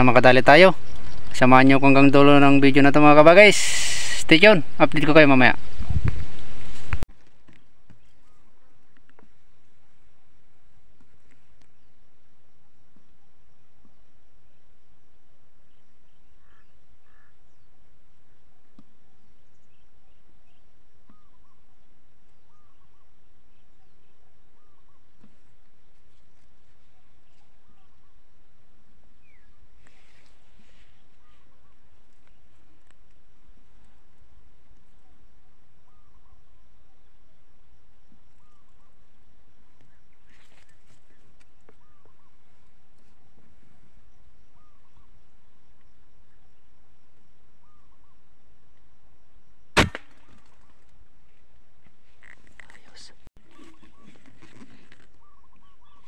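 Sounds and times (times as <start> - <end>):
birds chirping: 0.0 - 9.3, 19.2 - 28.2, 29.2 - 32.9, 38.3 - 42.7, 44.4 - 45.2, 52.2 - 54.5, 55.1 - 56.0
outdoor background noise: 0.0 - 56.0.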